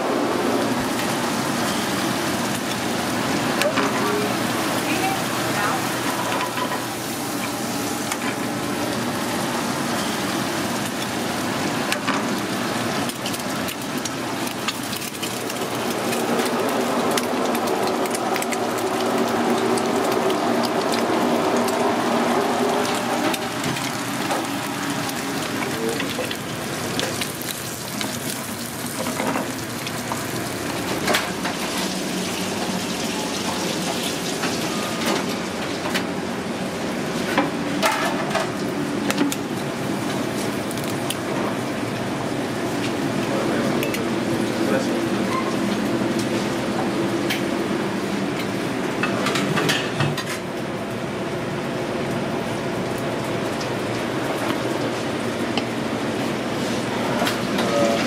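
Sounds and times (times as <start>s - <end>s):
butter and eggs sizzling in a skillet: 6.8s - 34.5s.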